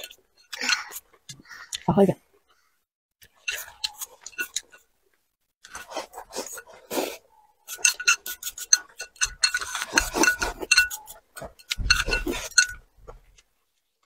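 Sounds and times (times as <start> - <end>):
chopsticks scraping ceramic bowl: 3.2 - 4.9, 5.6 - 12.8
wet chewing: 3.2 - 12.6.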